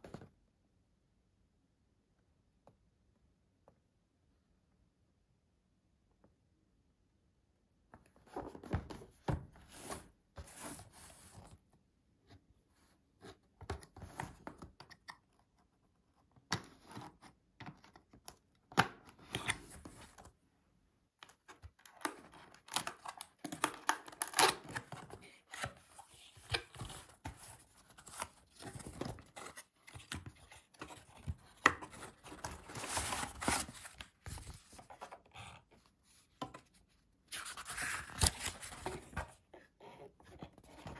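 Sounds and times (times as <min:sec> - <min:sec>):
cardboard box being opened: 0:25.5 - 0:35.3.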